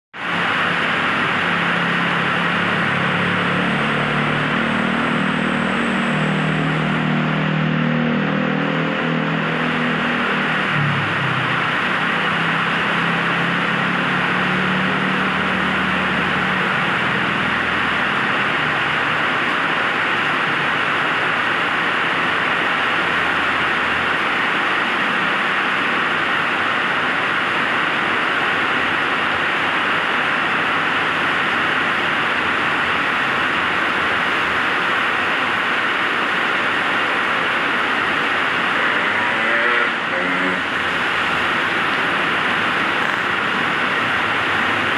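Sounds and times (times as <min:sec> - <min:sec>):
heavy rain on a wet road: 0:00.2 - 0:44.9
motorbike engine passing: 0:38.5 - 0:44.9.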